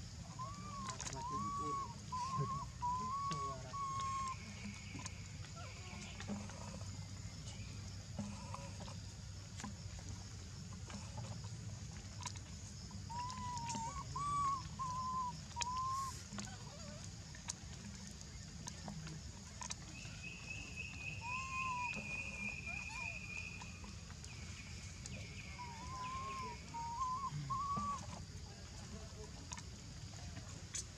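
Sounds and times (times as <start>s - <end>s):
baby monkey whimpering calls: 0.3s - 4.4s, 13.1s - 17.1s, 21.2s - 23.2s, 25.6s - 28.2s.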